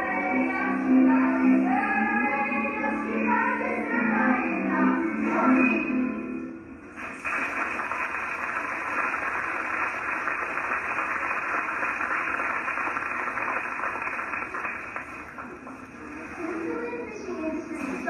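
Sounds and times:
static hiss: 0:06.8 - 0:16.7.

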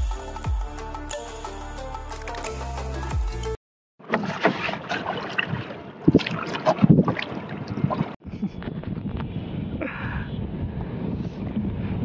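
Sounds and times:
water lapping around boat: 0:04.0 - 0:08.5
wind buffeting microphone: 0:06.8 - 0:12.0.

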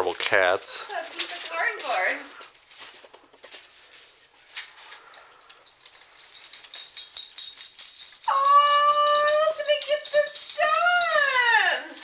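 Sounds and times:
light clicks and rustles: 0:01.0 - 0:08.2
rapid metallic jingling: 0:05.0 - 0:12.0.

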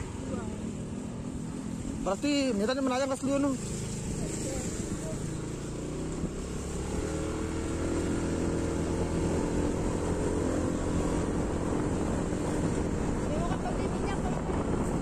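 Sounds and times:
road rumble: 0:00.0 - 0:15.0.

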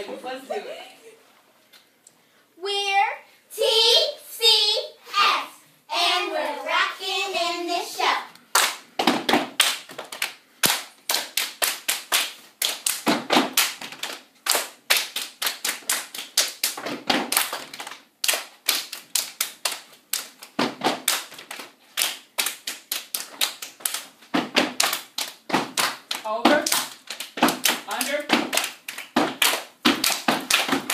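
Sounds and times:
hand claps: 0:08.6 - 0:30.9
foot stomps on hard floor: 0:24.3 - 0:24.8.

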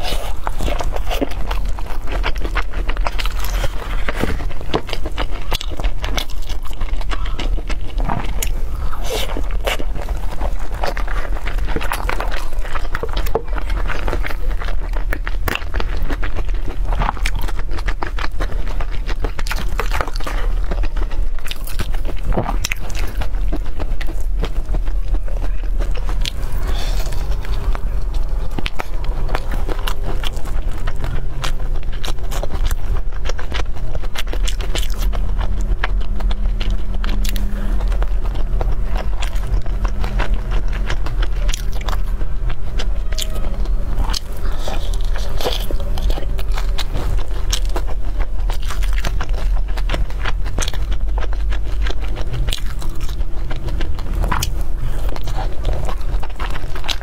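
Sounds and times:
chewing and biting: 0:00.0 - 0:57.0
steady low hum: 0:00.0 - 0:57.0.

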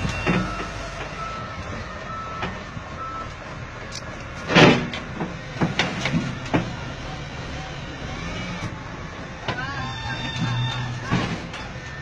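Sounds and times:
reversing alarm beeping: 0:00.0 - 0:03.3, 0:09.8 - 0:12.0
diesel engine running: 0:00.0 - 0:12.0.

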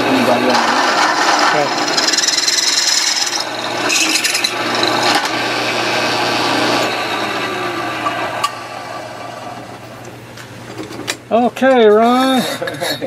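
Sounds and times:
drill bit grinding metal: 0:00.0 - 0:09.9
drill press motor hum: 0:00.0 - 0:10.2.

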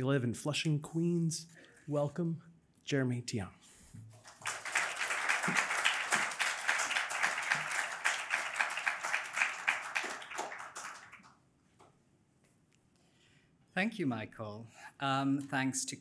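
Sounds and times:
audience applauding: 0:04.2 - 0:11.4.

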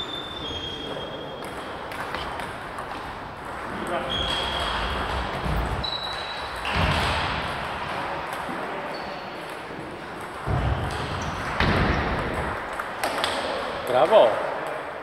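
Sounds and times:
short high squeaks: 0:00.0 - 0:01.4, 0:05.8 - 0:06.6
ping-pong balls clicking: 0:00.0 - 0:15.0.

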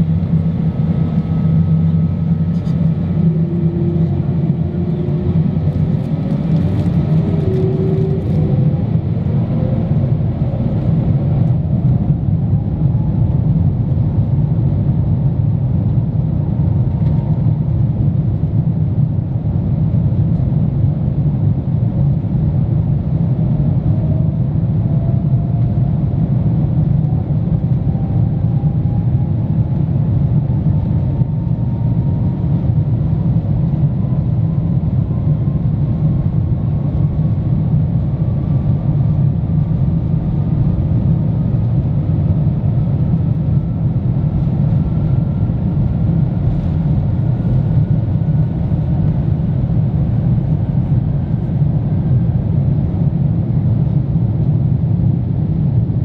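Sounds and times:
airliner engine rumble: 0:00.0 - 0:56.0
faint tone climbing in pitch: 0:01.2 - 0:06.0, 0:07.0 - 0:12.2.

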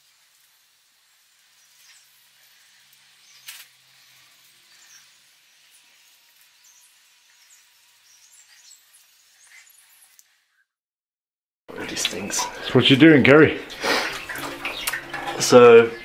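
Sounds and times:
steady hiss: 0:00.0 - 0:10.3, 0:11.7 - 0:14.3
scratchy brush strokes: 0:00.0 - 0:10.6.

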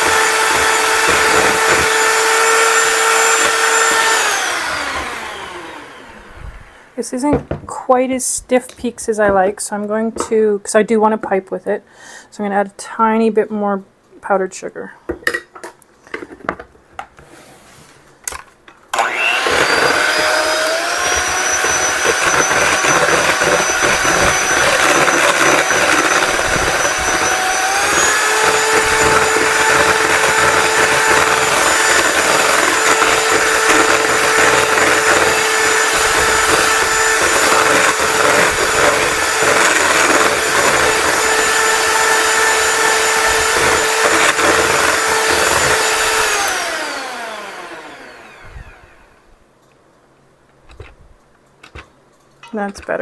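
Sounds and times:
hand mixer motor whine: 0:00.0 - 0:07.0, 0:18.9 - 0:49.4.

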